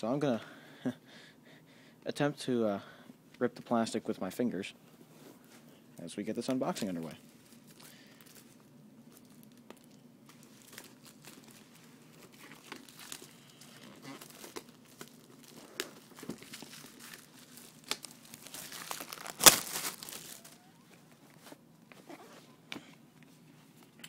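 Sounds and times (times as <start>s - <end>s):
plastic wrap crinkling and tearing: 6.7s - 21.0s
plastic wrap ripping: 9.1s - 20.8s.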